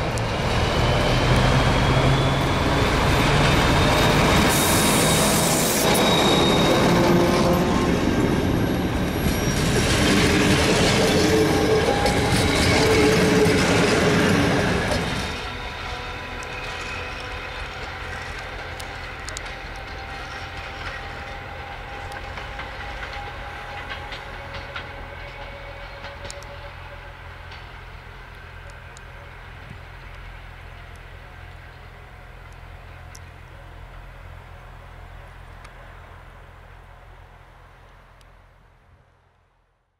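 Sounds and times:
thin wheel squeal: 3.5 - 7.8, 8.7 - 15.4
train wheels clicking over rail joints: 6.8 - 34.1.

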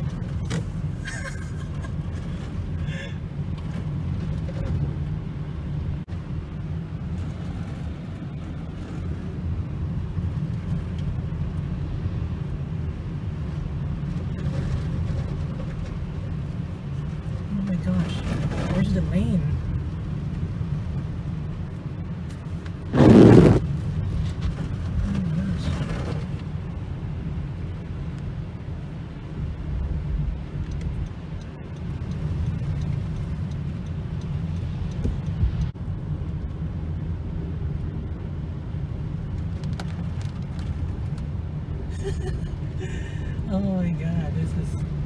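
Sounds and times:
car engine and tyres rumbling: 0.0 - 45.0
loud rushing burst: 22.9 - 23.7.

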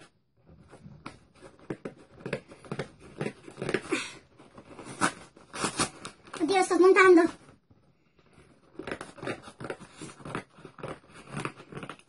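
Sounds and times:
scissors cutting cardboard: 0.0 - 6.4, 8.3 - 12.0
packing tape crackling: 1.4 - 6.5.

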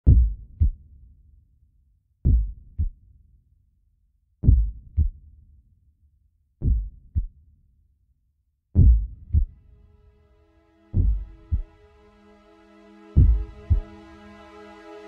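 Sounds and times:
heartbeat thumps: 0.0 - 0.8, 2.3 - 3.0, 4.4 - 5.2, 6.6 - 7.3, 8.8 - 9.5, 11.0 - 11.7, 13.2 - 13.8.

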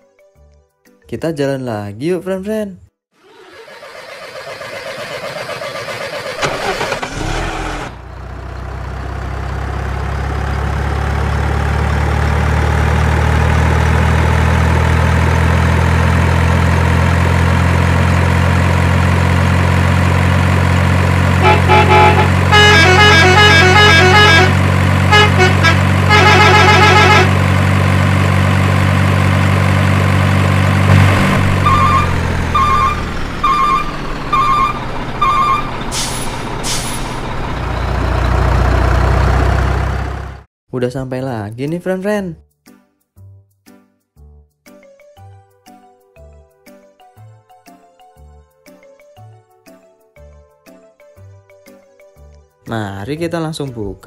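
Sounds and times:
heavy truck engine running: 3.2 - 40.5
multi-tone horn: 21.4 - 27.4
reversing beeps: 31.6 - 35.8.

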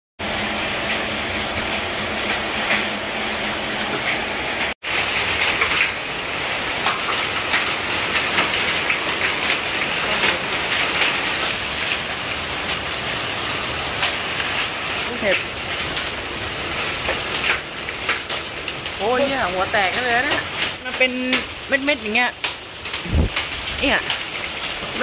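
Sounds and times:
heavy rain hissing: 0.2 - 25.0
hailstones clicking on surfaces: 3.8 - 25.0.

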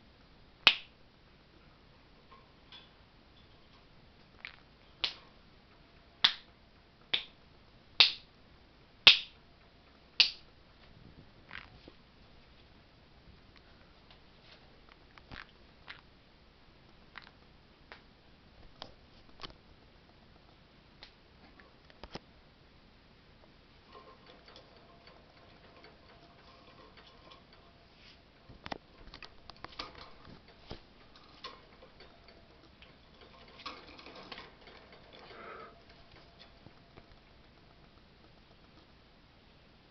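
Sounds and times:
parrot claws tapping cage bars: 28.6 - 38.8.

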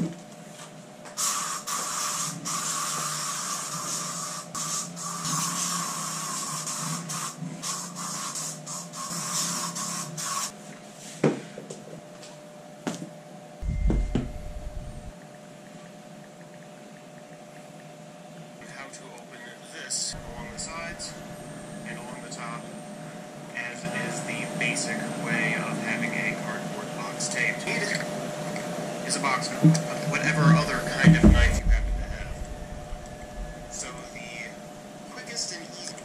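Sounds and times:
dull low thump: 13.6 - 15.1, 31.0 - 34.8
faint steady hum: 13.6 - 36.0.

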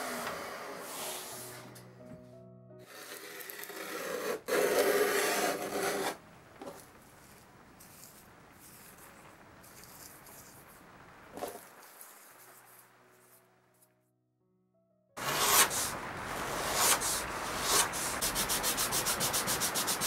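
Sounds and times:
scraper scraping wood: 2.8 - 6.8, 15.2 - 20.0.

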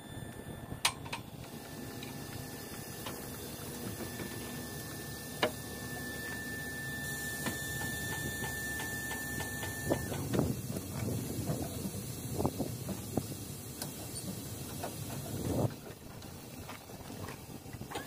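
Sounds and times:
steady high-pitched tone: 0.0 - 10.2.

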